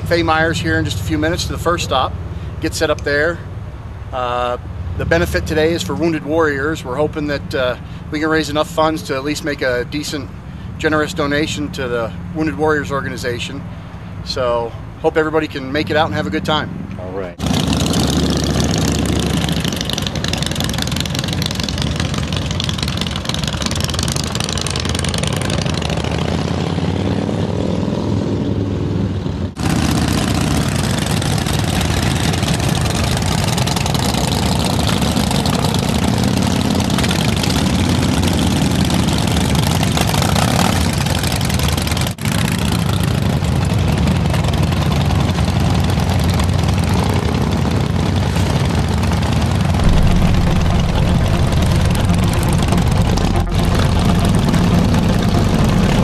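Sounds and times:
motorcycle engines idling: 0:00.0 - 0:27.3, 0:29.6 - 0:56.0
deep engine rumble: 0:48.6 - 0:56.0.

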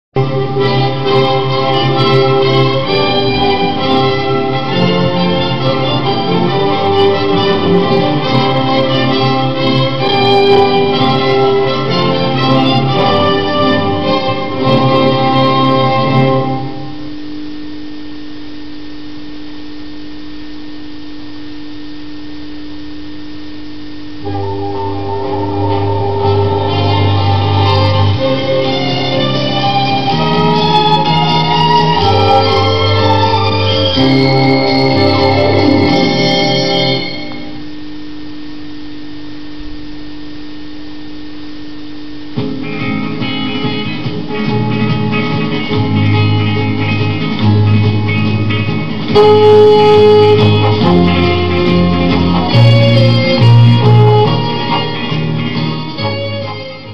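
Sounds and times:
orchestral music: 0:00.2 - 0:16.8, 0:24.2 - 0:37.6
steady held tone: 0:00.2 - 0:56.9.

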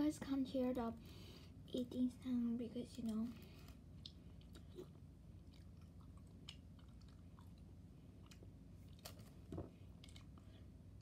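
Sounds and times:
faint chewing of jellies: 0:03.0 - 0:11.0.

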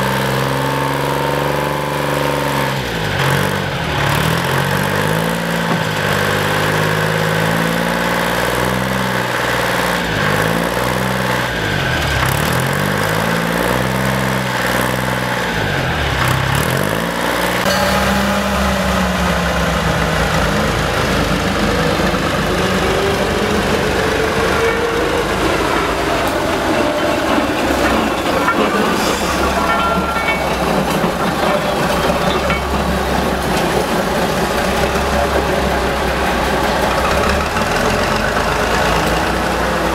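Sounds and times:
locomotive engine idling: 0:17.7 - 0:39.9.

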